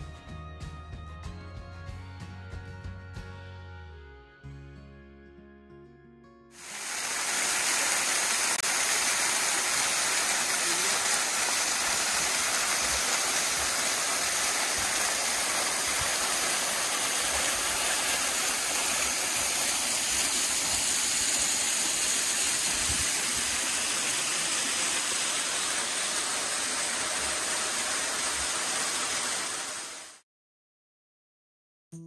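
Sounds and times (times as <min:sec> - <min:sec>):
waterfall rushing over rock: 0:06.6 - 0:30.2.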